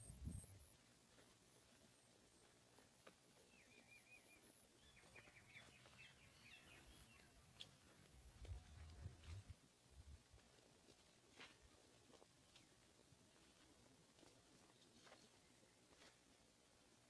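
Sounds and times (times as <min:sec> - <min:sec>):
small birds chirping: 0:00.0 - 0:09.5, 0:14.3 - 0:16.2.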